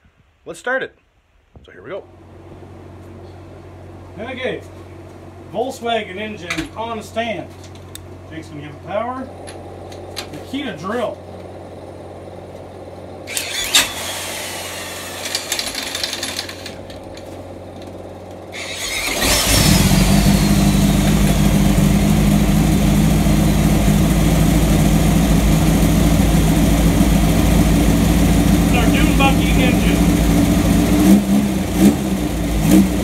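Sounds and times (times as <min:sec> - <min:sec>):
engine running: 0:02.4 - 0:33.0
drill whirring: 0:13.3 - 0:16.8, 0:18.5 - 0:21.6.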